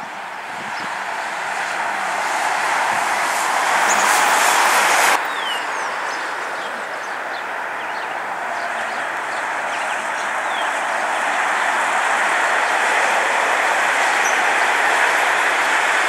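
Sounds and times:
distant jet engines rushing: 0.0 - 16.0
small birds chirping: 5.2 - 8.2.

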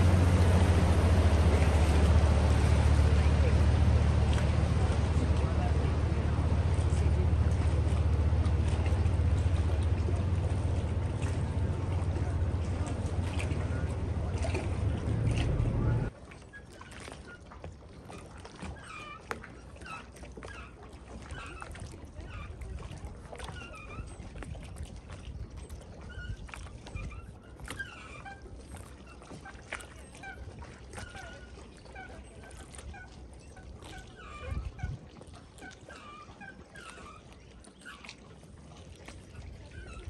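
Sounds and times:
steady low rumble: 0.0 - 16.1.

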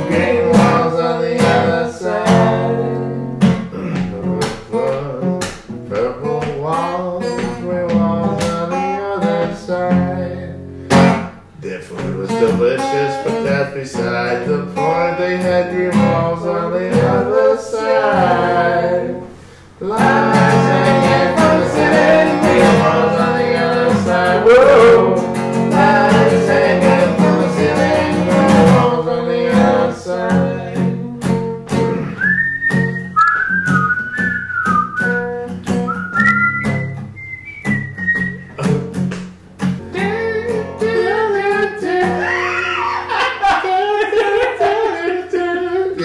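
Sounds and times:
acoustic guitar strumming: 0.0 - 46.0
person whistling a melody: 31.9 - 38.9.

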